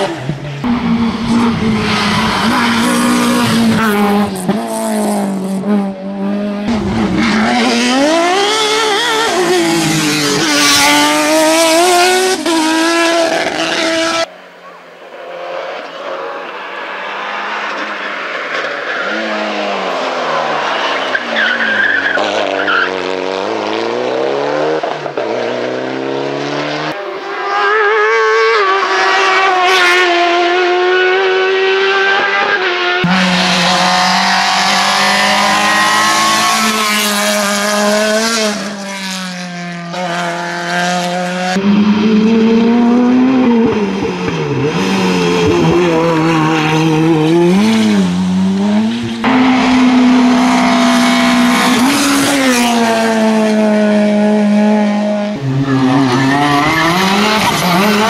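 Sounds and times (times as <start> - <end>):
race car engines at full throttle: 0.0 - 58.0.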